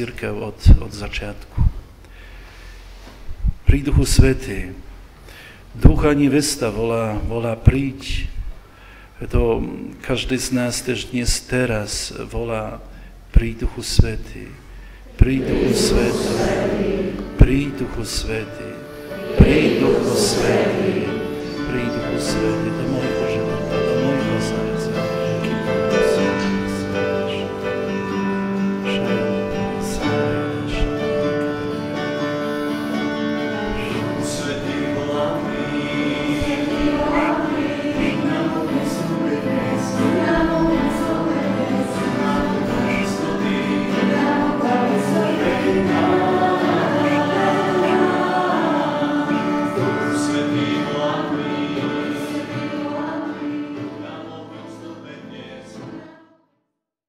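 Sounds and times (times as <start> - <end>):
choir singing a hymn: 15.0 - 56.4.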